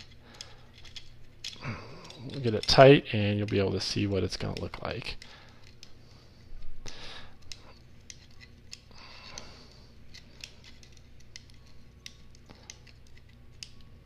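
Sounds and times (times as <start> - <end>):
hex key clicking on bolts: 0.0 - 5.9.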